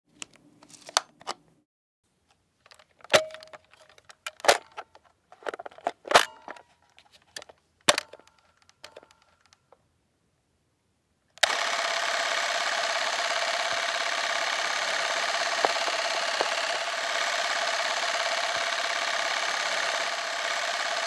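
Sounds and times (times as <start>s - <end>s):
sharp mechanical clicks and clacks: 11.4s - 21.0s.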